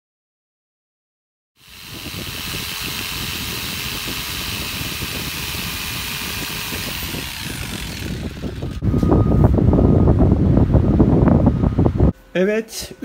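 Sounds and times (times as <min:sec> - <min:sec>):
electric jigsaw cutting panel: 0:01.6 - 0:08.8.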